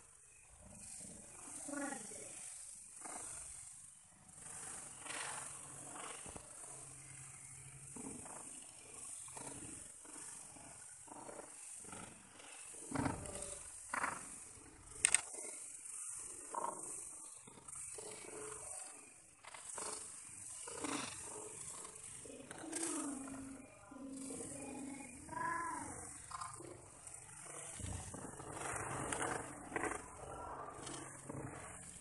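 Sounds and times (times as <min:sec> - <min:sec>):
crickets chirping: 0:00.0 - 0:32.0
sharp click: 0:15.0 - 0:15.3.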